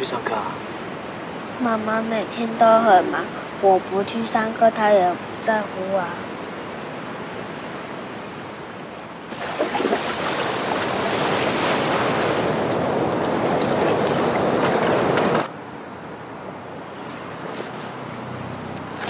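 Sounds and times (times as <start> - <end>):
sea waves washing onto beach: 6.2 - 15.5.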